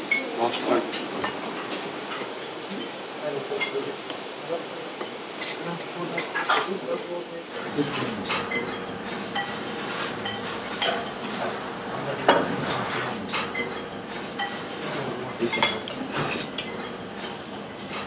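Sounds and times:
cutlery clinking on plates: 0.0s - 3.0s, 5.0s - 18.0s.

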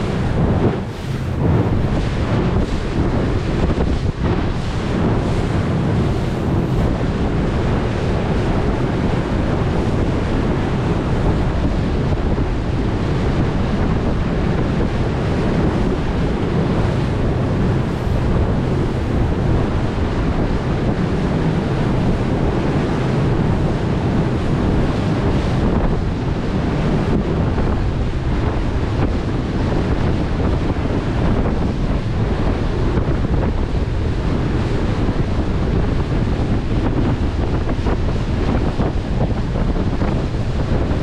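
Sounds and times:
wind buffeting microphone: 0.0s - 41.0s.

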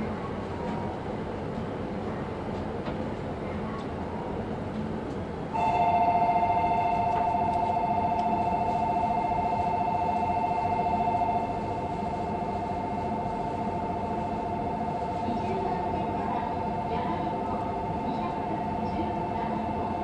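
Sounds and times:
busy station platform hum: 0.0s - 20.0s
two-tone departure bell trill: 5.6s - 14.7s.

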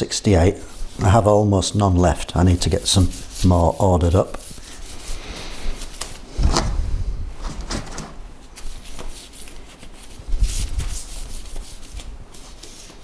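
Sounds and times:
gloved hand scraping metal: 2.3s - 6.9s.

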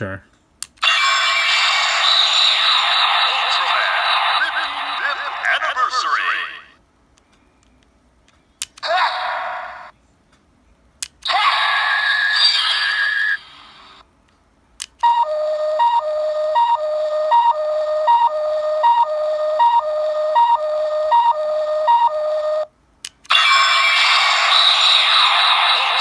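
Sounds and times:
electronic toy sound burst: 0.8s - 6.7s, 11.2s - 13.8s, 23.3s - 26.0s
toy two-tone beeping: 15.0s - 22.7s.

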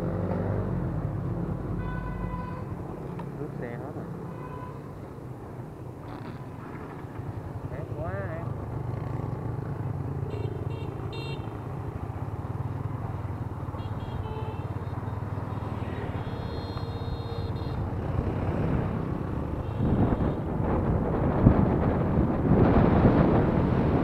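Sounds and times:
wind noise on microphone: 18.5s - 24.0s.

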